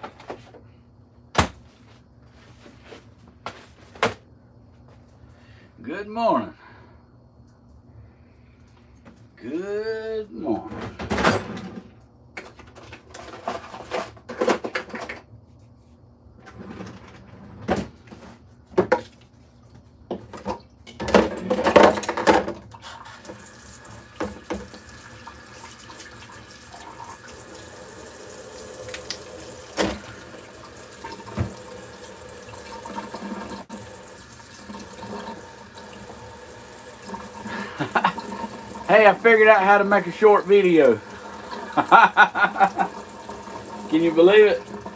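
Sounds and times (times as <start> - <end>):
kitchen tap running: 22.8 - 44.9.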